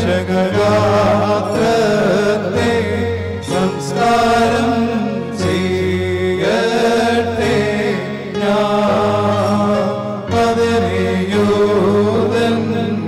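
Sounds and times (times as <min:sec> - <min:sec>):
choir singing a slow chant: 0:00.0 - 0:13.0.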